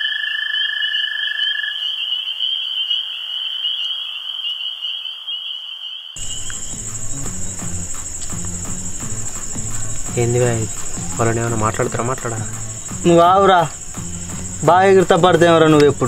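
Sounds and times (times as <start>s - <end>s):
high insect or frog trill: 0.0s - 16.0s
low background music notes: 6.2s - 16.0s
lower trill: 6.2s - 16.0s.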